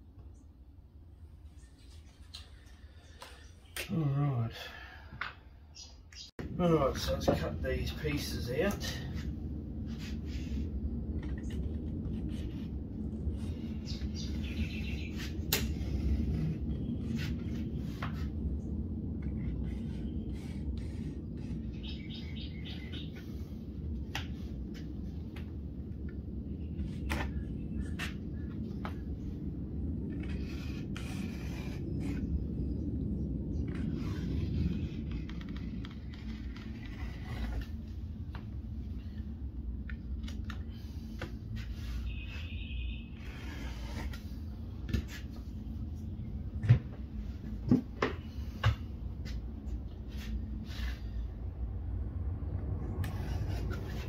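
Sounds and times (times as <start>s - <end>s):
steady low rumble: 0.0s - 54.0s
bird chirping: 5.7s - 6.4s, 13.8s - 15.3s, 21.7s - 23.2s, 42.1s - 43.2s.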